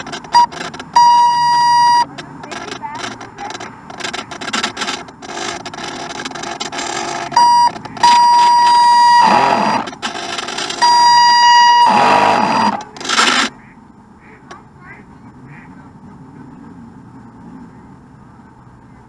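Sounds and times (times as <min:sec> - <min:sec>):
electronic alarm beeping: 0:00.0 - 0:05.0, 0:05.7 - 0:13.5.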